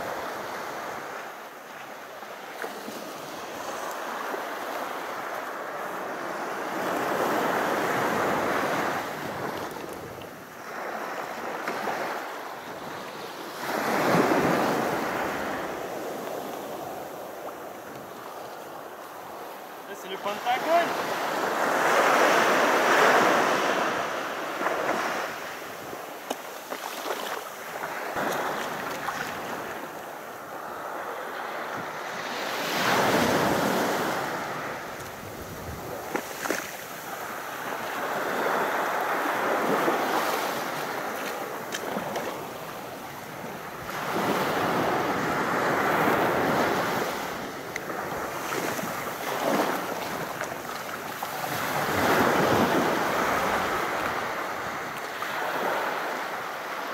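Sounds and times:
waves breaking on beach: 0.0s - 56.9s
wind noise on microphone: 33.1s - 36.7s.

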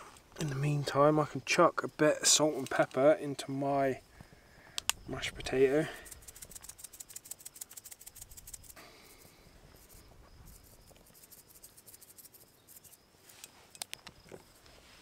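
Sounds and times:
seasoning container clicking: 6.1s - 8.8s.

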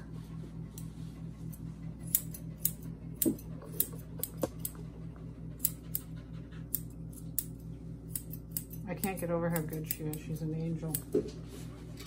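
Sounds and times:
steady low hum: 0.0s - 12.0s
scissors snipping hair: 1.5s - 4.8s, 5.6s - 11.2s.

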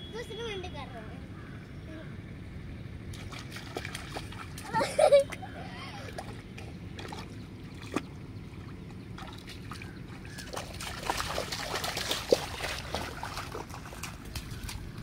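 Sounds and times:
feet splashing in muddy water: 3.1s - 15.0s.

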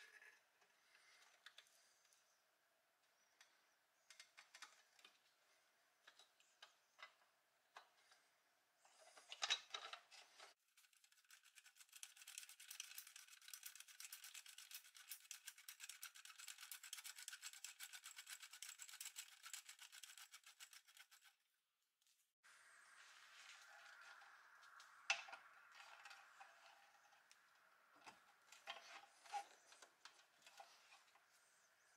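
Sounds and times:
rapid metal clicking: 10.8s - 21.3s
metal scrape: 22.9s - 31.7s.

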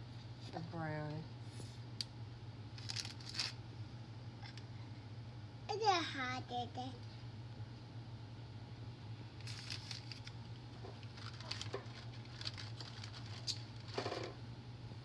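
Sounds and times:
cookies crinkling and crackling: 2.7s - 3.7s, 9.3s - 14.4s.

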